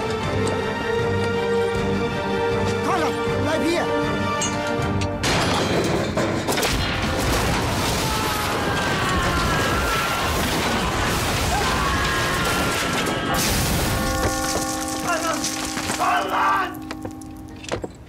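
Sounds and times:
loud crash: 5.2 - 14.5.

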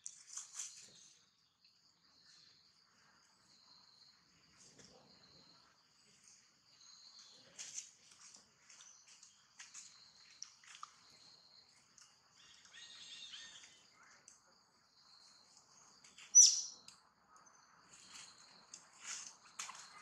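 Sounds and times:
short high chirps and calls: 12.4 - 13.8, 16.3 - 16.8.

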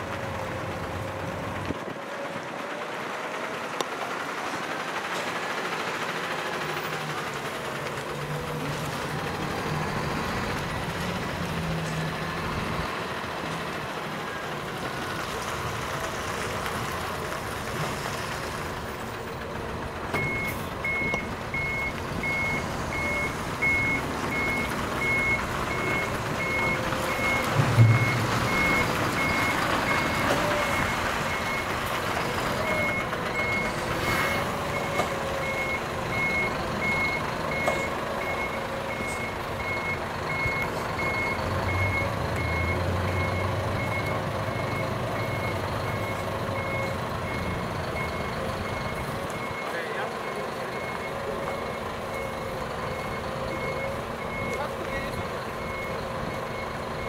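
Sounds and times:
diesel truck engine running: 0.0 - 57.0
reversing alarm beeping: 20.1 - 57.0
brief low thud: 27.5 - 28.4.

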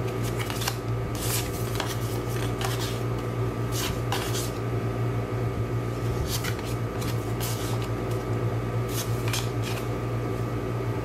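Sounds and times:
paper cards rustling: 0.0 - 4.6, 6.0 - 8.3, 8.9 - 10.0
steady low hum: 0.0 - 11.0.

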